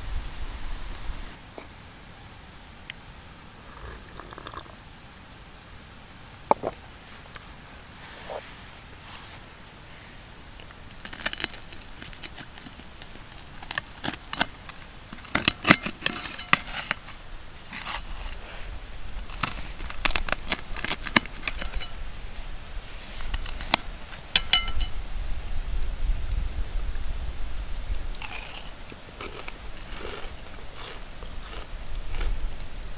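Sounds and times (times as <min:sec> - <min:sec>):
knife crunching crispy food: 0:10.9 - 0:18.4, 0:19.2 - 0:21.9, 0:23.2 - 0:24.6, 0:28.1 - 0:32.3
metal blade scraping pan: 0:15.2 - 0:18.4, 0:19.3 - 0:22.0.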